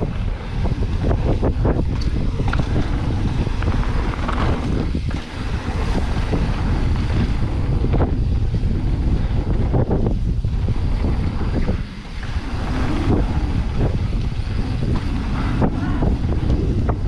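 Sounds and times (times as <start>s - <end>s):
bike knocks and rattles: 0.0s - 12.1s
wind rushing over microphone: 0.0s - 17.0s.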